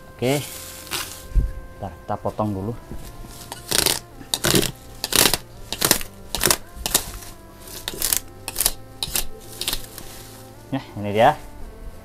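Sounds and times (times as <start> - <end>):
faint background music: 0.0 - 12.0
plastic wrap tearing: 0.3 - 1.3, 3.0 - 10.6.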